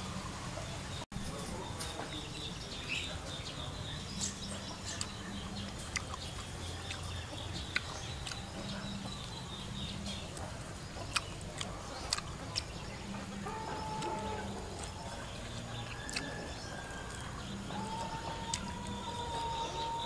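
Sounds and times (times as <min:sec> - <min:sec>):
outdoor background: 0:00.0 - 0:20.0
person chewing food: 0:04.9 - 0:20.0.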